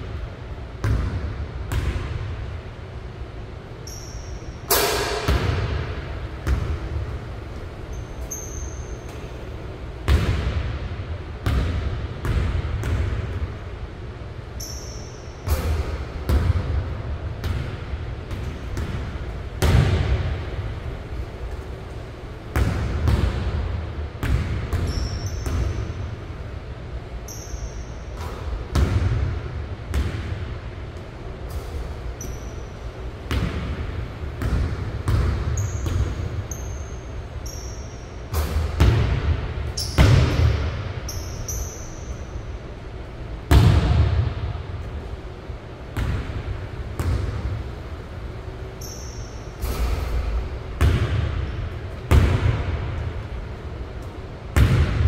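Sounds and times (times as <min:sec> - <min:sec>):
basketball bouncing on gym floor: 0:00.0 - 0:02.6, 0:03.8 - 0:13.7, 0:14.6 - 0:26.2, 0:27.3 - 0:42.2, 0:43.4 - 0:45.1, 0:45.8 - 0:47.8, 0:48.8 - 0:53.4, 0:54.0 - 0:55.0
shoe squeaks: 0:03.8 - 0:04.6, 0:07.8 - 0:09.5, 0:14.6 - 0:15.4, 0:24.8 - 0:26.0, 0:27.3 - 0:28.2, 0:32.2 - 0:32.9, 0:35.5 - 0:38.2, 0:39.8 - 0:42.4, 0:48.8 - 0:49.6.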